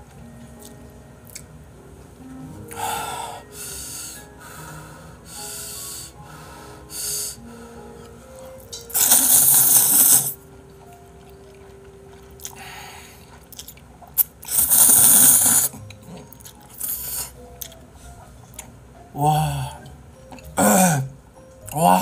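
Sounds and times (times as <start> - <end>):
man slurping noodles: 8.9 - 10.4, 14.2 - 15.8
soft chewing: 10.7 - 14.5, 15.7 - 18.7.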